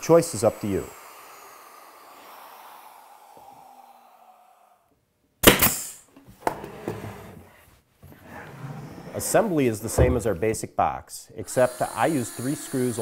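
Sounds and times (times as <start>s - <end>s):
nail gun shot: 5.4s - 6.0s.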